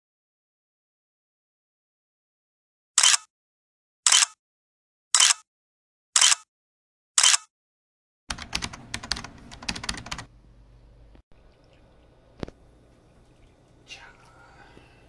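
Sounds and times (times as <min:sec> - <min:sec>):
keyboard typing clicks: 0:08.3 - 0:10.3
faint room noise: 0:10.3 - 0:15.0.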